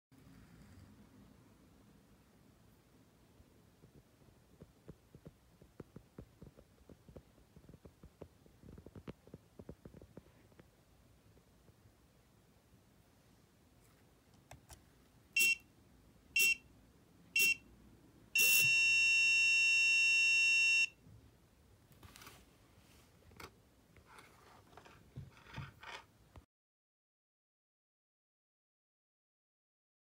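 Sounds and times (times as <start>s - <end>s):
electronic buzzer beeps: 15.4s - 15.6s, 16.4s - 16.6s, 17.4s - 17.6s, 18.4s - 21.0s.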